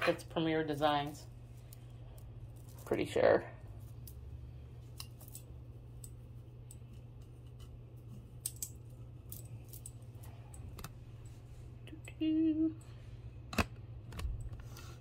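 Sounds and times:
low steady hum: 0:00.0 - 0:15.0
jewelry clicking and clinking: 0:00.9 - 0:03.0, 0:03.6 - 0:12.2.

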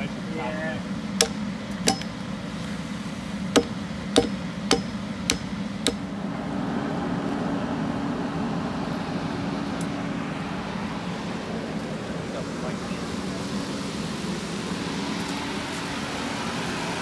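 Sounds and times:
steady low hum: 0:00.0 - 0:17.0
hatchet chopping log: 0:01.2 - 0:02.1, 0:03.6 - 0:06.1.

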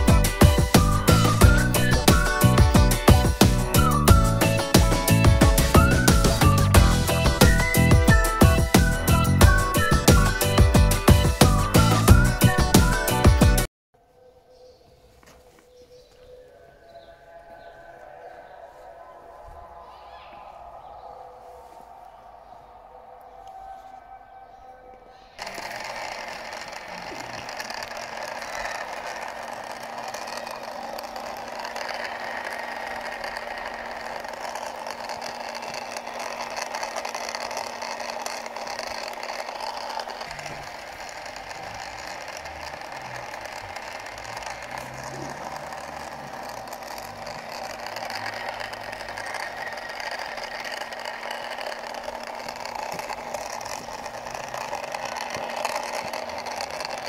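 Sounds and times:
toy motor gear whirring: 0:00.0 - 0:13.7, 0:25.3 - 0:57.0.

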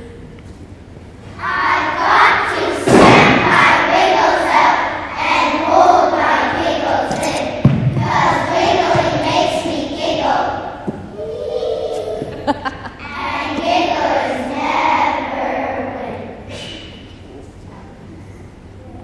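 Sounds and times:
children reciting in unison: 0:01.4 - 0:12.3, 0:13.0 - 0:16.8
heavy thump: 0:02.8 - 0:03.6, 0:07.1 - 0:09.9.

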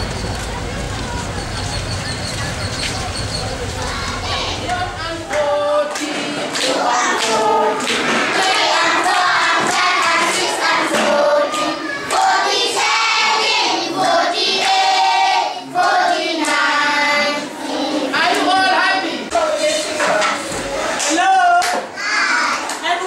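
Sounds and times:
children singing together: 0:03.4 - 0:21.0, 0:21.9 - 0:22.8
children clapping hands: 0:04.1 - 0:12.8, 0:13.4 - 0:15.0, 0:15.8 - 0:16.8, 0:18.2 - 0:18.6, 0:20.2 - 0:21.9, 0:22.5 - 0:22.9.

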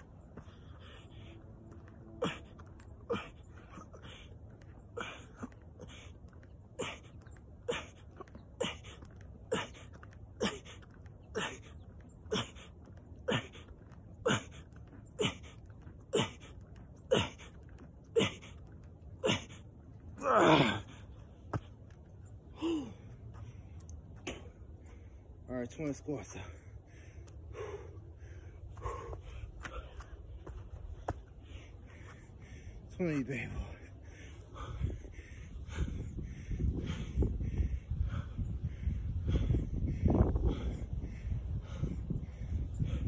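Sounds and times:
man groaning: 0:20.2 - 0:20.9.

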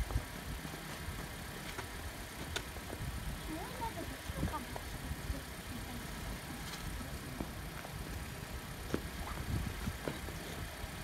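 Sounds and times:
wind buffeting microphone: 0:00.0 - 0:11.0
shoes scuffing on asphalt: 0:08.8 - 0:10.6.

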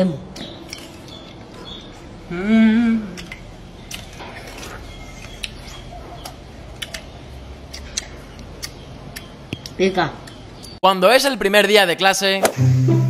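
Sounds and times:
person humming: 0:02.3 - 0:03.2
people biting and chewing: 0:02.7 - 0:10.4.

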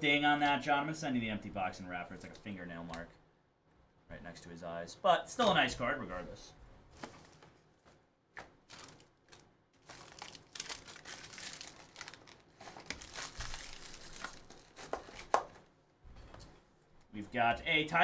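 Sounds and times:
foil wrapper crinkling: 0:08.6 - 0:15.4.

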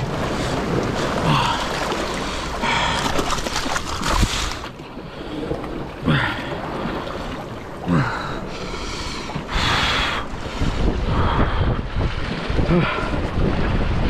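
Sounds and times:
waves washing over rocks: 0:00.0 - 0:14.0
wind buffeting microphone: 0:09.3 - 0:14.0.

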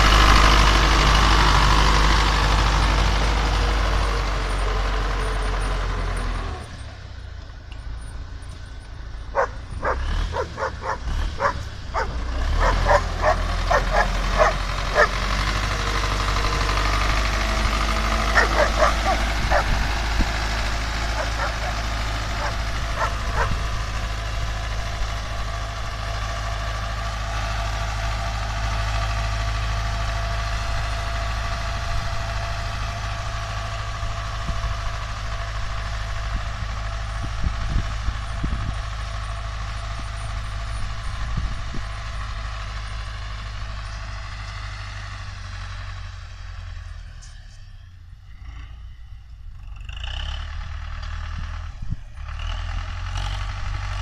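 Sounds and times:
tractor engine under load: 0:00.0 - 0:54.0
dog yipping: 0:09.4 - 0:15.1, 0:18.3 - 0:19.7, 0:21.2 - 0:21.8, 0:22.4 - 0:23.6.

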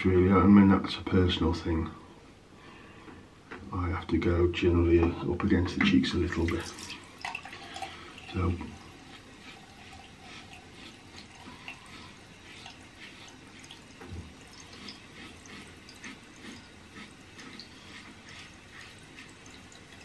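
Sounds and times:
razor scraping stubble: 0:08.7 - 0:20.0.

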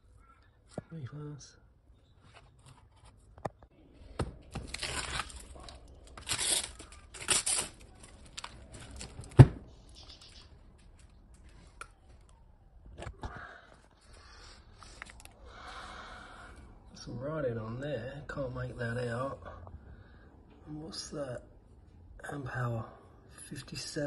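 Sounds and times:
adhesive tape ripping: 0:04.5 - 0:09.2.

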